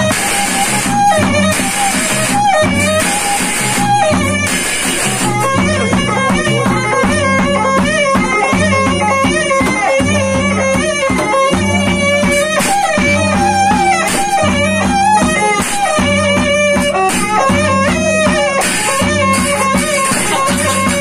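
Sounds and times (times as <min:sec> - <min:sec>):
small cymbals clashing: 0:00.0 - 0:05.8
frame drums beating: 0:00.0 - 0:21.0
reedy woodwind melody: 0:00.0 - 0:21.0.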